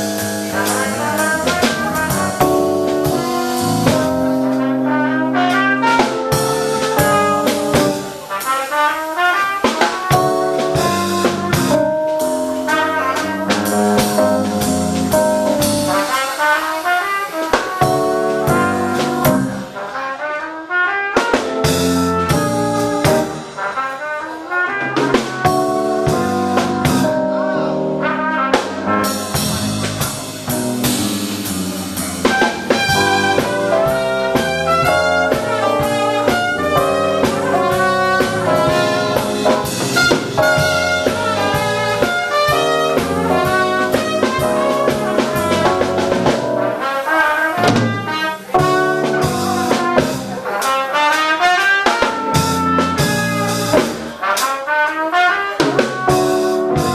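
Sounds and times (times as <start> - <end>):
electric bass: 0.0 - 8.3, 10.5 - 16.1, 17.9 - 19.7, 21.6 - 23.5, 25.2 - 46.7
drum kit with cymbals: 0.0 - 56.9
trumpet lead line: 0.0 - 56.9.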